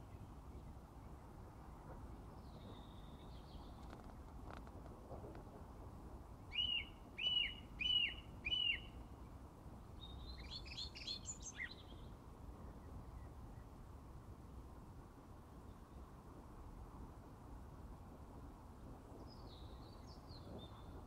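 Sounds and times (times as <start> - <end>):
songbird singing: 0.0 - 4.6, 6.4 - 13.9, 19.2 - 21.0.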